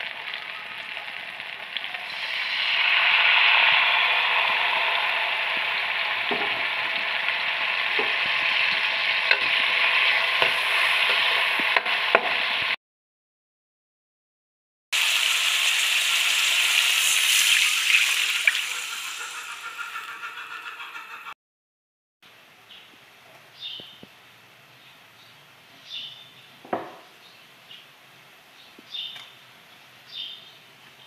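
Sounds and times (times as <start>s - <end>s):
food sizzling in hot oil: 0.0s - 12.8s, 15.0s - 21.2s.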